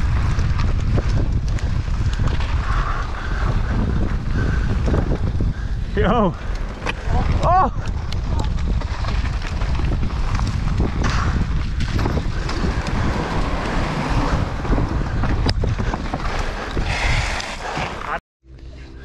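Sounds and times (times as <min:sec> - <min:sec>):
wind buffeting microphone: 0:00.0 - 0:17.7
tyres rumbling on dirt trail: 0:00.0 - 0:18.2
bike knocks and rattles: 0:06.6 - 0:16.8.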